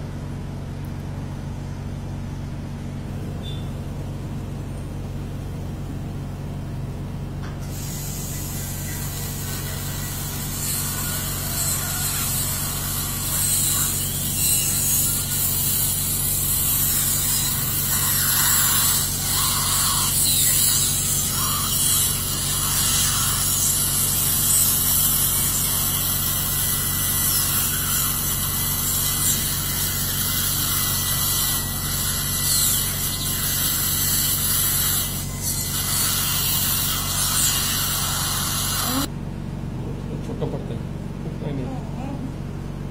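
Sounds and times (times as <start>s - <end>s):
low equipment hum: 0.0s - 42.9s.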